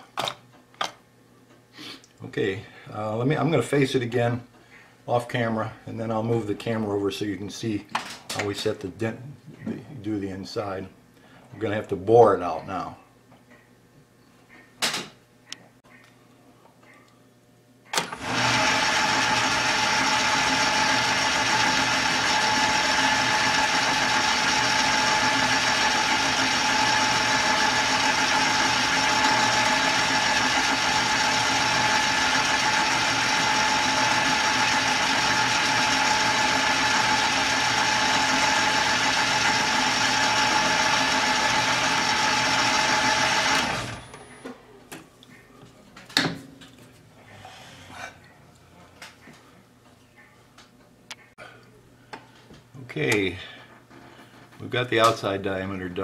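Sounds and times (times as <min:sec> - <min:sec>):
drill boring into brass: 0:18.0 - 0:44.2
metal lathe running: 0:18.0 - 0:44.2.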